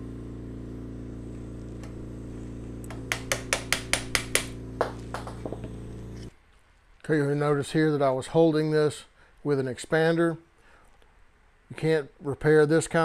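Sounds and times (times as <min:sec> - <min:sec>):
steady hum: 0:00.0 - 0:06.4.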